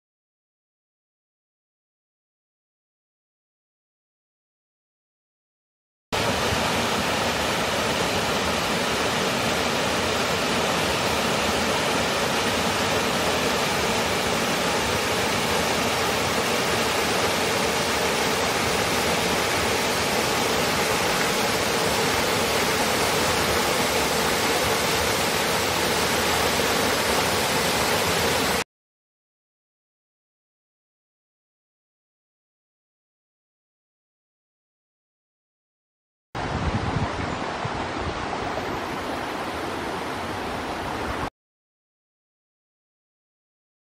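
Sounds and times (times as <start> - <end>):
waterfall rushing: 6.2 - 28.6, 36.4 - 41.3.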